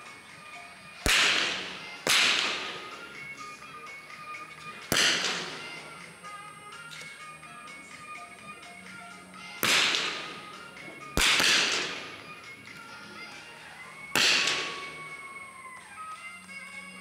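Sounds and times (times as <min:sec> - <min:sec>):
rifle shots echoing indoors: 0:01.1 - 0:02.9, 0:04.9 - 0:05.7, 0:09.6 - 0:10.4, 0:11.2 - 0:12.2, 0:14.2 - 0:14.9.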